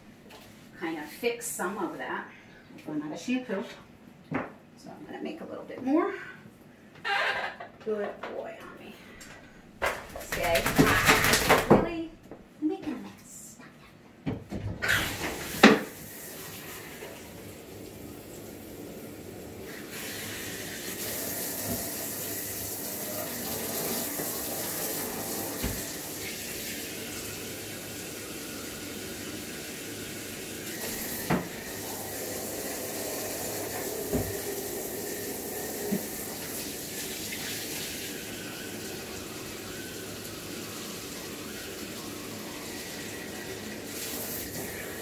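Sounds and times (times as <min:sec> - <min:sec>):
water spraying with hiss: 0:14.8 - 0:45.0.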